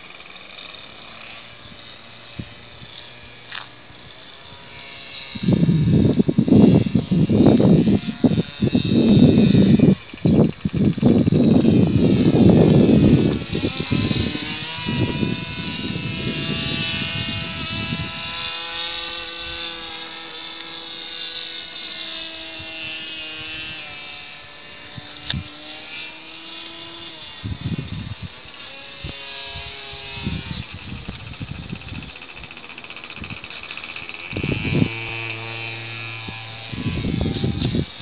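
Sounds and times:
model airplane motor droning: 0.0 - 38.0
wind buffeting microphone: 1.6 - 38.0.

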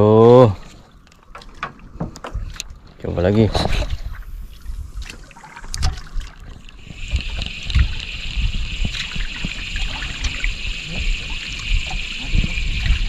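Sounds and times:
water sloshing against boat hull: 0.5 - 8.2.

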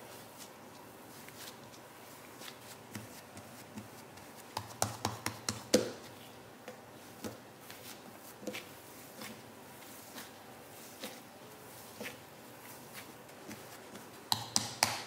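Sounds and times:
hands kneading dough: 0.0 - 15.0
sharp taps and slaps on dough: 2.9 - 6.0, 14.3 - 15.0.

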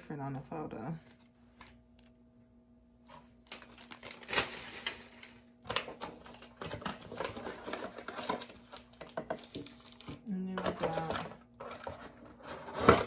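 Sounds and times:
plastic and cardboard crinkling: 3.0 - 13.0.

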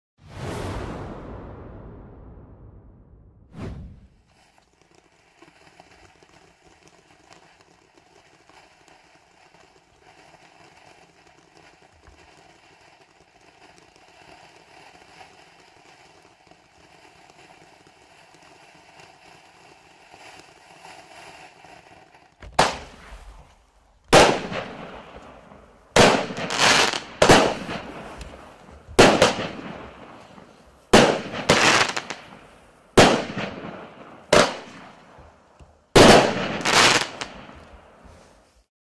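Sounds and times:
firework fountain hissing: 3.6 - 38.7
firework shots banging: 22.3 - 38.5.

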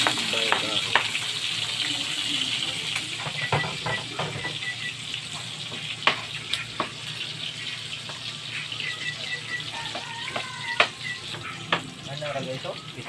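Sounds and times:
meat sizzling in a wok: 0.0 - 13.0.

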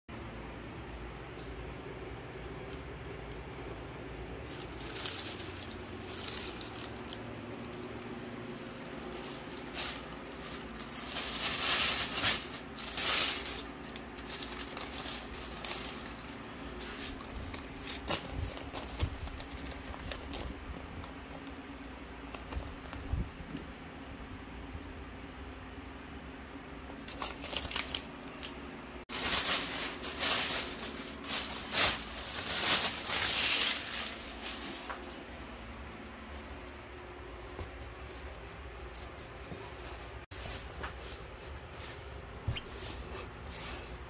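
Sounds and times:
plastic bag crinkling: 4.5 - 23.6, 26.9 - 35.7.

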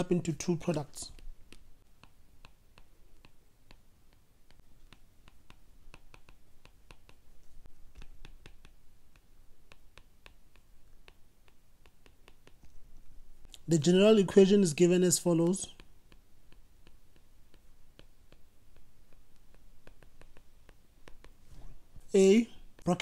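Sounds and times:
stylus tapping on tablet: 1.1 - 7.3, 7.9 - 12.7, 15.6 - 21.4.

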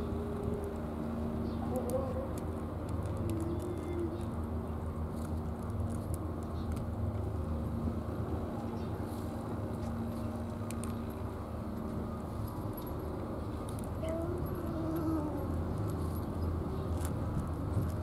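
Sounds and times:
cat crunching dry kibble: 1.7 - 7.3, 10.3 - 11.2.

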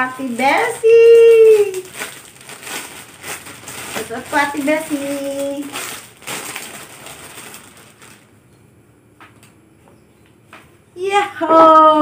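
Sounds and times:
plastic bag crinkling: 0.0 - 8.5
faint taps: 9.2 - 10.7.

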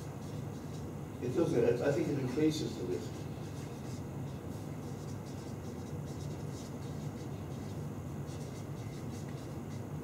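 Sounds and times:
low background hum: 0.0 - 10.0
marker pen scratching on paper: 3.0 - 10.0.

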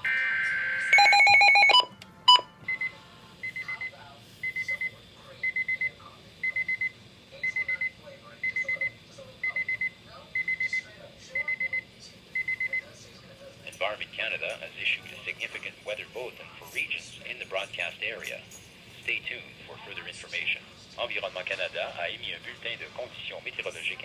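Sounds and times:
electronic alarm tone: 0.0 - 3.8.

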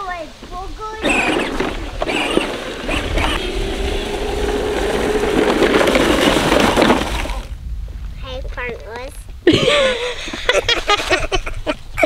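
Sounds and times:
wheels crunching dry leaves: 0.0 - 7.6
electric motor whine: 1.0 - 7.6.

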